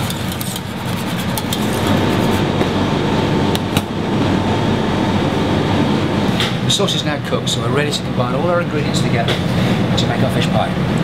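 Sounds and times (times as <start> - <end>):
whisk clinking against saucepan: 0.0 - 2.4
kitchen roar: 0.0 - 7.0.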